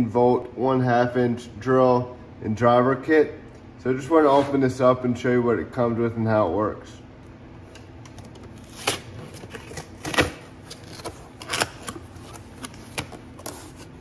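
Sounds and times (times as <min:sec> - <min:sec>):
cardboard crackling and rustling: 0:08.5 - 0:14.0
cardboard flap tearing: 0:08.5 - 0:14.0.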